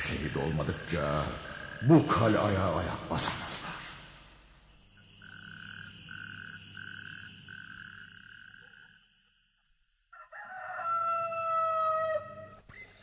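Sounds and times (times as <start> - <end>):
rooster crowing: 10.1 - 12.6.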